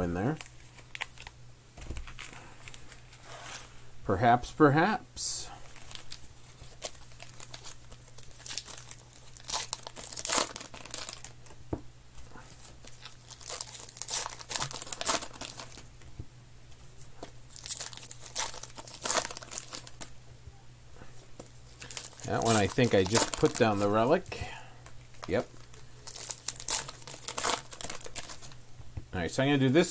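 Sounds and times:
faint low hum: 0.0s - 29.9s
card pack wrapper tearing: 0.3s - 1.4s, 5.7s - 11.5s, 12.6s - 15.8s, 17.5s - 20.1s, 21.8s - 24.3s, 25.1s - 28.6s.

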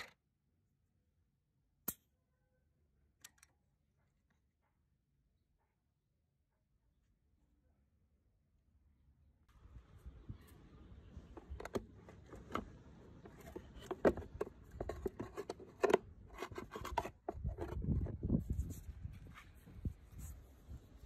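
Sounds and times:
plastic clicks and knocks: 11.3s - 18.0s.

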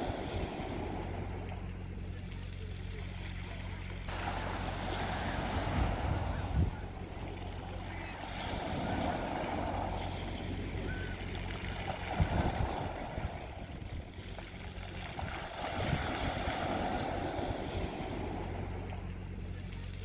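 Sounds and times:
small waves on pebble beach: 0.0s - 2.2s, 2.8s - 20.0s
steady low hum: 0.0s - 20.0s
wind buffeting microphone: 4.1s - 19.3s.

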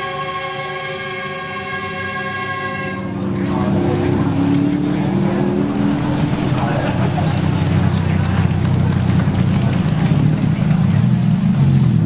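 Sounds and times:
loud steady held tone: 0.0s - 3.4s
race car engines passing: 2.3s - 12.0s.

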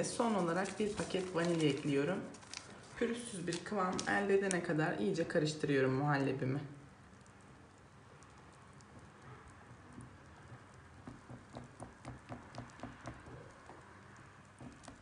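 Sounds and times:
whisk beating pudding in pot: 9.7s - 15.0s.

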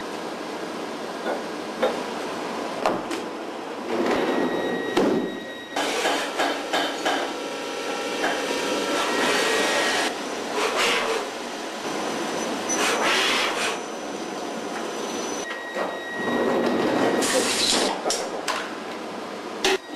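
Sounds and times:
machine tool cutting hiss and whine: 8.5s - 11.3s, 17.1s - 17.9s.

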